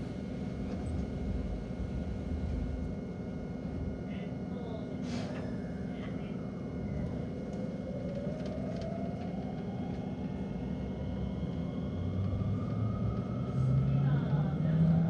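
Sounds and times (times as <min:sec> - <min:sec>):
diesel railcar engine rumble: 0:00.0 - 0:15.0
rising engine whine: 0:06.5 - 0:15.0.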